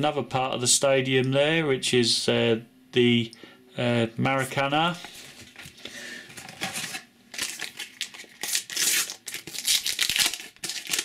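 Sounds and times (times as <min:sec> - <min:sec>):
paper wrapper crinkling: 0:05.0 - 0:11.0.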